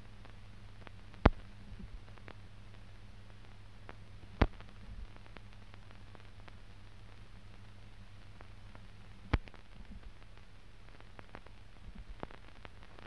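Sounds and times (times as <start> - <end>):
film soundtrack hiss and hum: 0.0 - 13.0.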